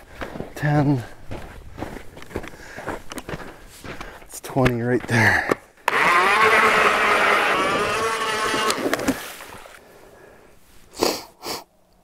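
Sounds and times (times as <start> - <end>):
electric ice auger whine: 5.9 - 9.8.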